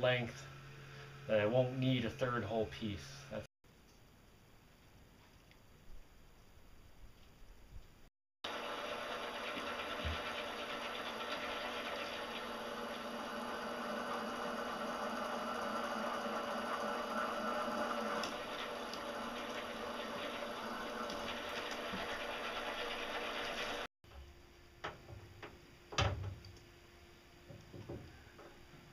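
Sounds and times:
bench mill motor drilling steel: 8.5s - 23.9s.

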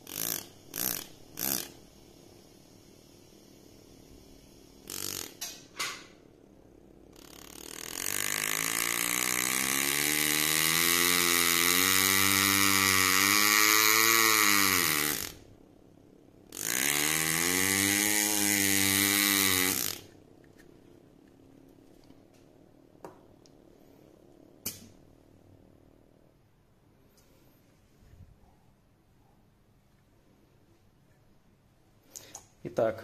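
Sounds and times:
pneumatic engraver buzzing: 0.0s - 6.2s, 7.1s - 15.5s, 16.5s - 20.2s.

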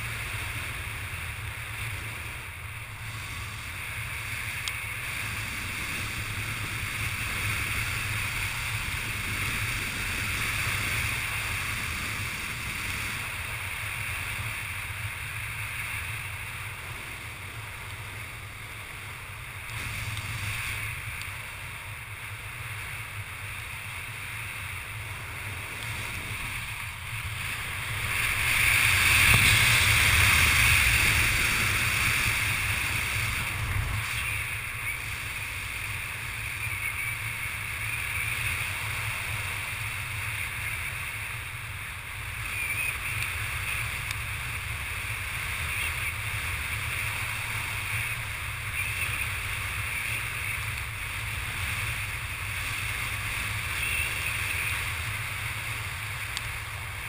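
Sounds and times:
wind rushing over helmet: 0.0s - 18.8s, 24.3s - 36.4s.

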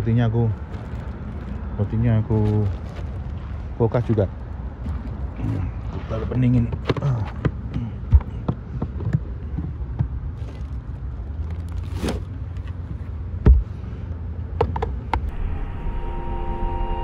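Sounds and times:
road traffic rumble: 0.0s - 17.0s
plastic cooler lid opening and shutting: 11.5s - 12.7s.

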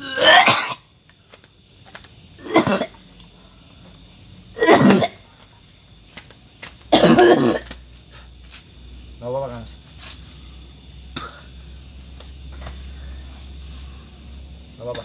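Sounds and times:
man coughing: 0.1s - 0.8s, 2.4s - 3.0s, 4.6s - 5.2s, 6.9s - 7.7s.

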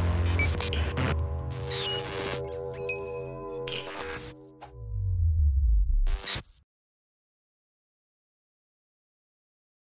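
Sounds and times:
glitchy static crackle: 0.0s - 2.7s, 3.7s - 4.6s, 6.0s - 6.6s
synth tones: 0.0s - 6.3s
deep bass swell: 4.8s - 6.1s.

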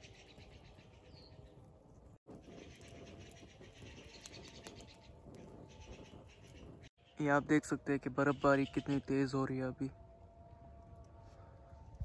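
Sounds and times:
campfire crackling: 0.0s - 12.0s.

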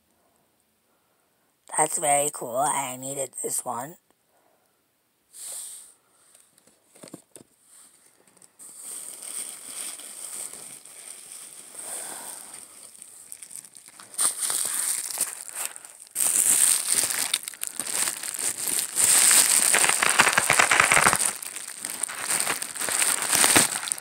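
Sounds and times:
plastic packaging crinkling: 8.0s - 24.0s.

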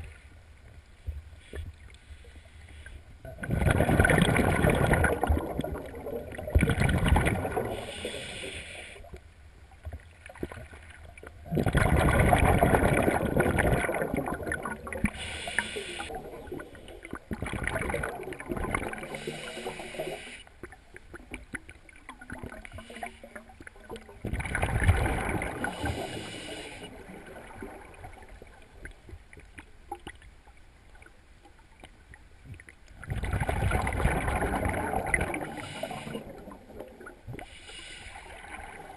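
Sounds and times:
regulator inhale hiss: 1.4s - 3.1s, 7.6s - 9.2s, 15.0s - 17.1s, 19.0s - 20.6s, 22.7s - 23.5s, 25.6s - 27.1s, 35.5s - 36.4s, 37.4s - 38.5s
bubbles gurgling: 3.3s - 8.0s, 10.3s - 19.9s, 23.6s - 26.2s, 32.9s - 37.4s.

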